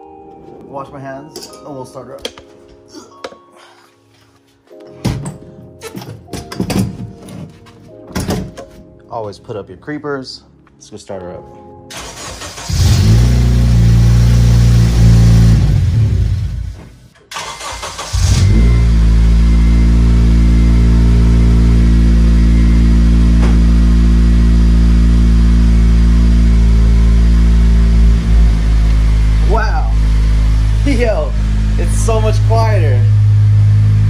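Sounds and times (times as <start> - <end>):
car engine with exhaust leak: 12.1 - 16.8, 17.4 - 34.0
car engine idling: 17.6 - 34.0.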